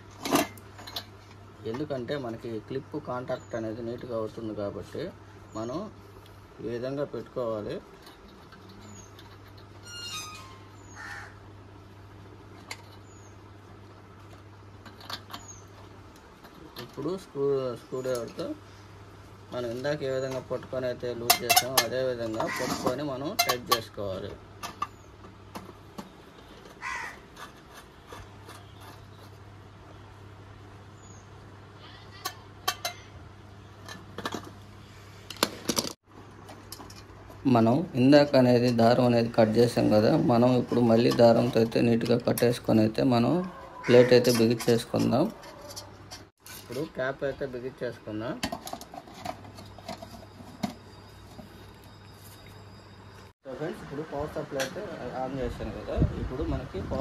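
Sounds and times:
low steady hum: 0:00.0 - 0:57.0
crow cawing: 0:10.9 - 0:11.4, 0:22.4 - 0:22.8, 0:26.8 - 0:27.3, 0:43.6 - 0:44.3
light scraping of tools: 0:19.5 - 0:29.5, 0:36.5 - 0:47.0.

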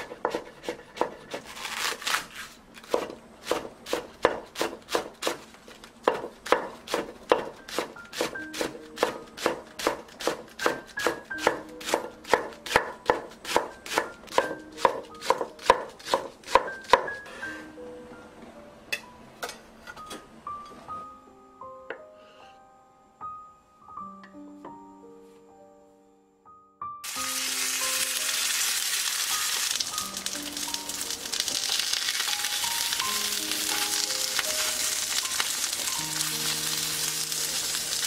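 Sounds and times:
knife chopping on wooden board: 0:00.0 - 0:02.0, 0:02.9 - 0:05.4.

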